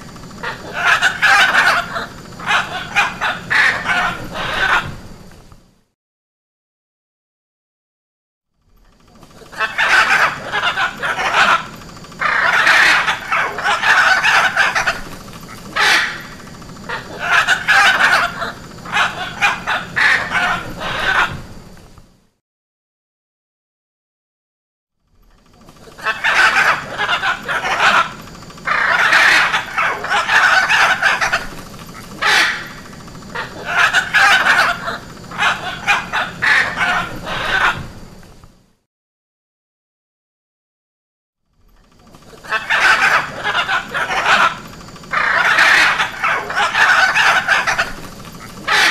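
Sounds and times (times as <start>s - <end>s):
macaw squawking: 0.0s - 5.0s, 9.2s - 21.6s, 25.5s - 38.1s, 41.9s - 48.9s.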